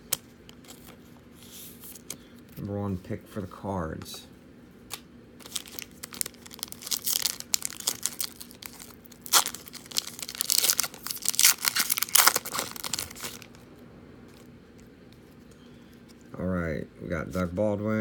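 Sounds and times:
foil wrapper crinkling and tearing: 5.4s - 13.6s.

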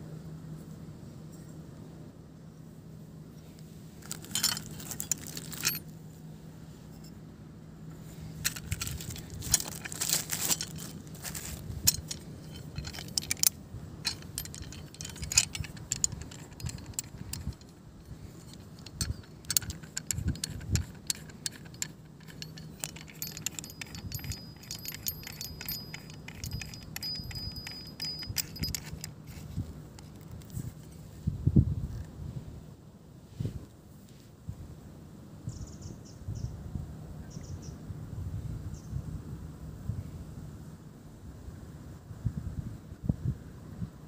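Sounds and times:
metal and plastic clicks: 4.0s - 5.8s, 8.4s - 30.6s.

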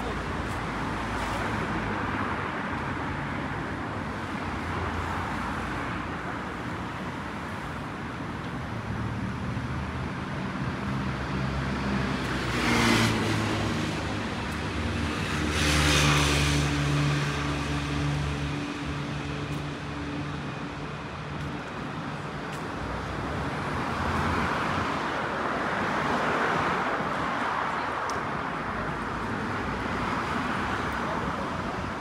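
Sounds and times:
tyres on the road: 0.0s - 32.0s
vehicles passing close by: 0.0s - 32.0s.

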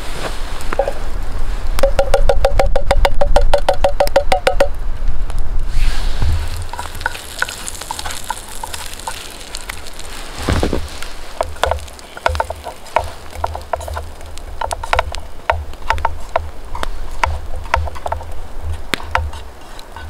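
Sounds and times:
campfire crackling: 0.0s - 20.0s
food sizzling: 5.7s - 20.0s.

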